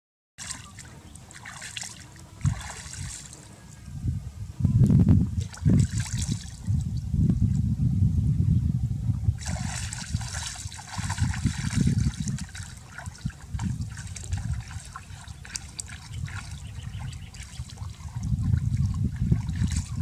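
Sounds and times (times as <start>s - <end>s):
water splashing and trickling: 0.4s - 3.8s, 5.3s - 7.0s, 9.4s - 20.0s
low rumble: 2.5s - 12.7s.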